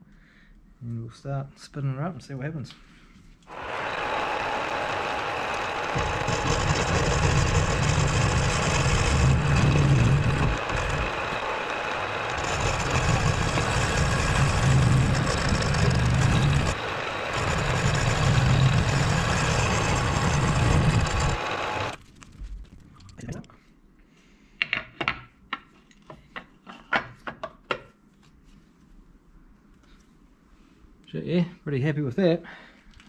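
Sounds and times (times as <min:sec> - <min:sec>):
cutter grinding metal: 0:03.5 - 0:22.0
milling machine motor running: 0:03.5 - 0:22.0.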